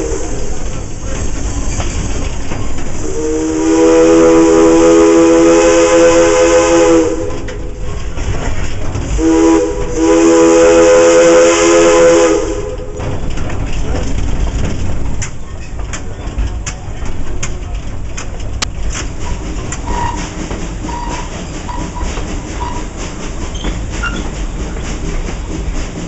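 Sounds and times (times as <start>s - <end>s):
train wheels clicking on rails: 0.0s - 26.0s
steam locomotive chime whistle: 3.0s - 7.5s, 9.2s - 12.9s, 19.8s - 23.0s.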